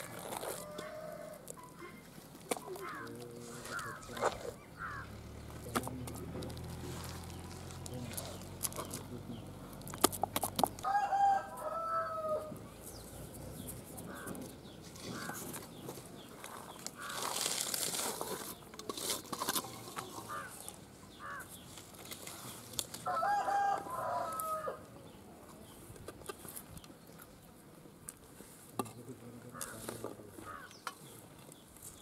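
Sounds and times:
rooster crowing: 0:10.8 - 0:12.6, 0:23.1 - 0:24.9.

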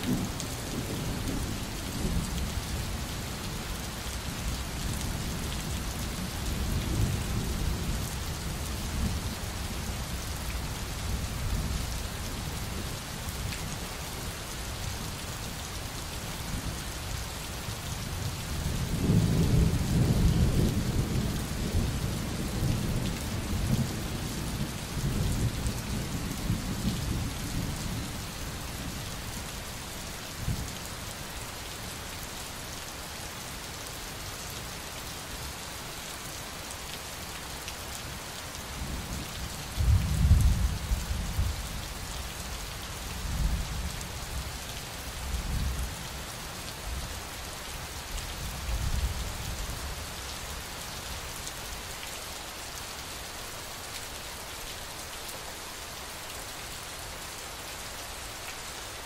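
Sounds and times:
steady rain: 0:00.0 - 0:59.0
low thunder rumbles: 0:39.8 - 0:41.5.

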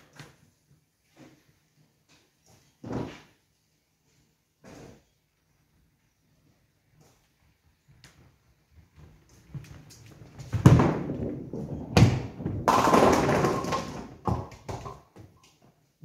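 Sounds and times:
bowling pins rolling and clattering: 0:09.2 - 0:15.4
bowling ball heavy thuds: 0:10.5 - 0:15.0.

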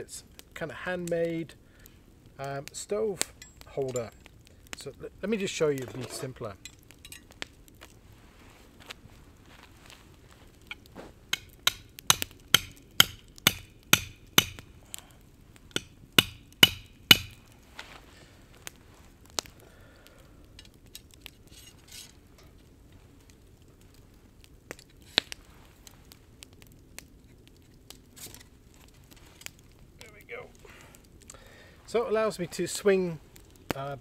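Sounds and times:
hammer striking steel: 0:11.3 - 0:14.6, 0:15.7 - 0:17.4.

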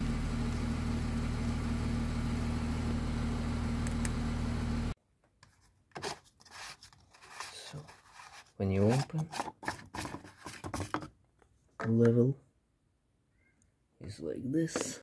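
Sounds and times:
diesel engine idling: 0:00.0 - 0:05.0.

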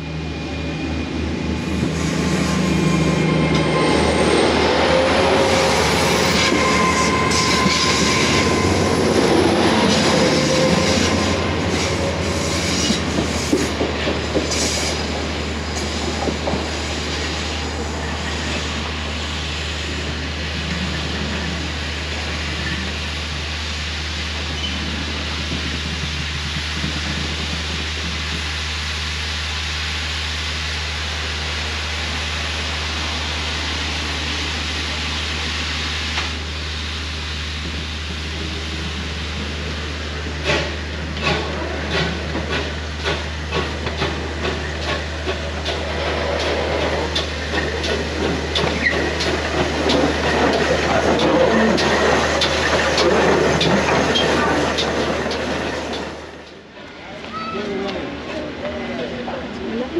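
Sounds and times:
steam locomotive chuffing beats: 0:36.4 - 0:56.6.

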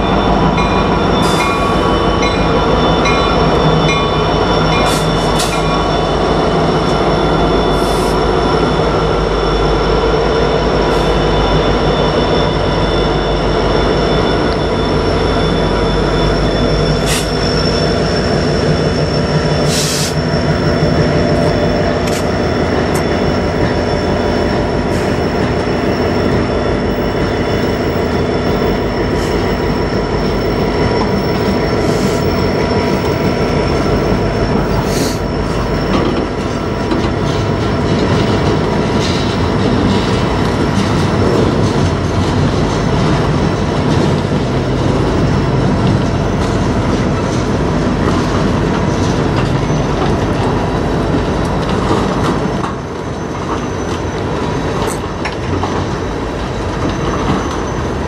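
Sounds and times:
steel wheels rumbling on rails: 0:00.0 - 0:58.0
sharp wheel squeaks: 0:10.8 - 0:43.5, 0:48.0 - 0:50.8, 0:52.0 - 0:56.0, 0:56.7 - 0:58.0.

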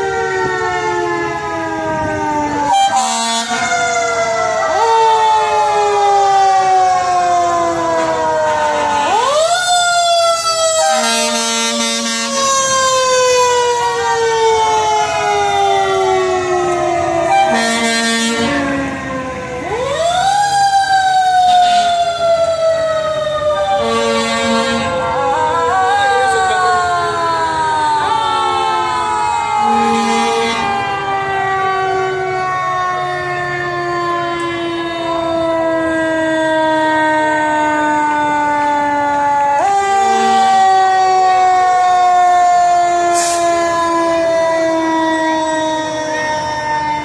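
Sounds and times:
fire engine siren wailing: 0:00.0 - 0:47.0
air horn blasts: 0:02.7 - 0:03.7, 0:10.8 - 0:12.4, 0:17.2 - 0:18.7, 0:23.6 - 0:25.1, 0:29.6 - 0:30.9, 0:40.0 - 0:40.6, 0:43.1 - 0:43.5.

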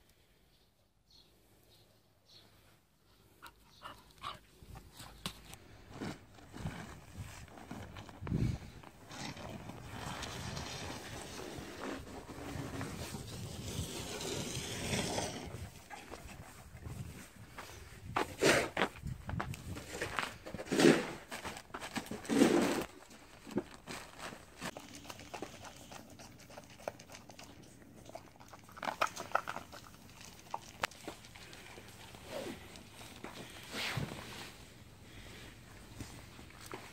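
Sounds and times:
outdoor background noise: 0:00.0 - 0:36.9
dog crunching dry kibble: 0:21.2 - 0:33.6.

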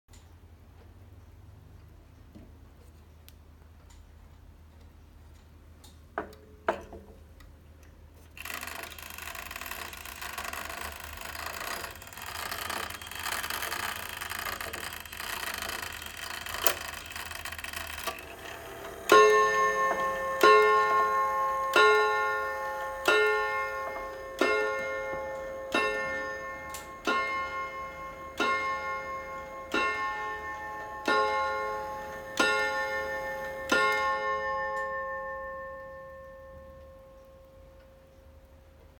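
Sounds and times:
clock click: 0:08.4 - 0:37.0
clock chime melody: 0:08.4 - 0:38.2
clock ringing strikes: 0:08.4 - 0:38.2.

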